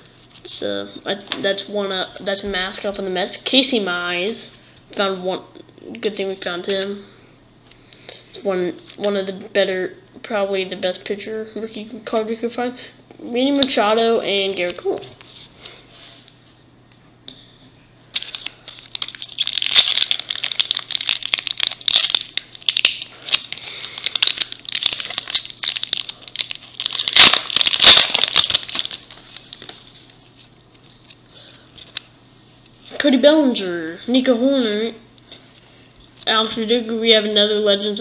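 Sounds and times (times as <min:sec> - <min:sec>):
plastic wrapper crinkling: 0:18.1 - 0:32.1.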